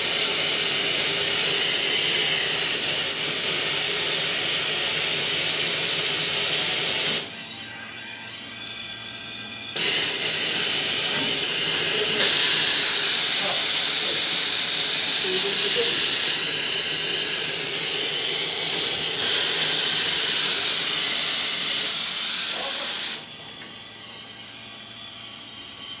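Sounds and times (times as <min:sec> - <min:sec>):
espresso machine steam wand hissing: 0:00.0 - 0:07.2, 0:09.8 - 0:24.4.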